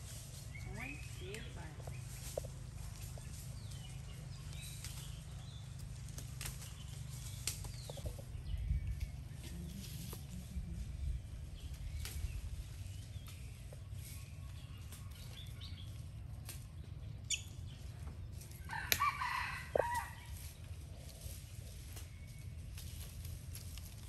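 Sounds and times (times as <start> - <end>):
steady low rumble: 0.0 - 18.6.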